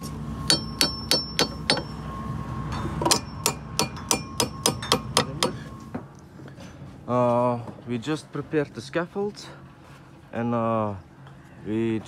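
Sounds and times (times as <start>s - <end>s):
metallic hammer blows: 0.4s - 6.0s.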